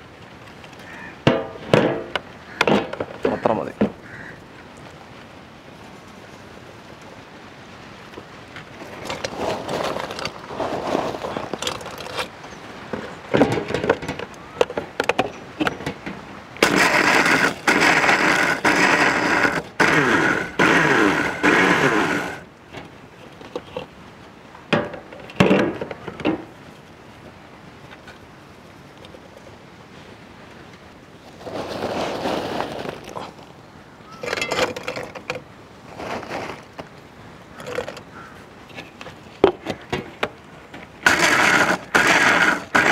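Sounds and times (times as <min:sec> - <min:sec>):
mixer grinder motor: 0:16.6 - 0:22.4, 0:41.1 - 0:42.9.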